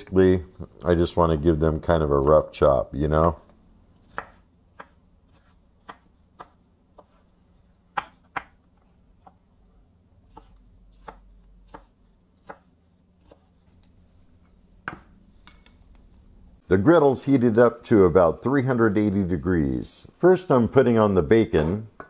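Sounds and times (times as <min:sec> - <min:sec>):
knife chopping on cutting board: 0:04.0 - 0:07.2, 0:07.9 - 0:08.6, 0:10.3 - 0:13.5.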